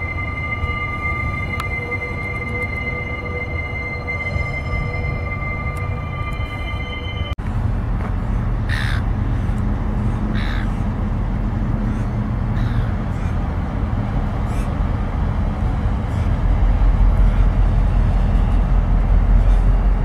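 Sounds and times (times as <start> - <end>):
diesel locomotive engines rumbling: 0.0 - 20.0
crow cawing: 8.7 - 9.1, 10.3 - 10.8, 12.0 - 13.4.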